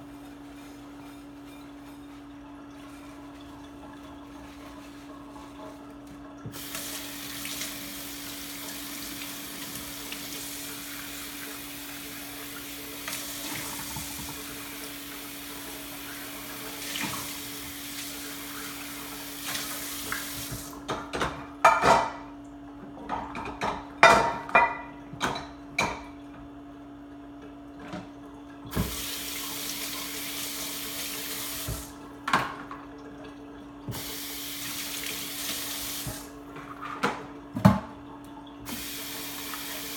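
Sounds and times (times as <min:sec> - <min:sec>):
faucet running into steel sink: 0:06.4 - 0:20.8, 0:28.7 - 0:32.0, 0:33.8 - 0:36.4, 0:38.6 - 0:39.9.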